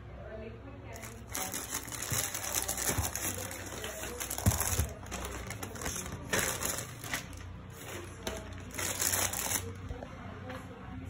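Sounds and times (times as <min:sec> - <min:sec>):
plastic mailer bag crinkling: 0:01.0 - 0:09.8.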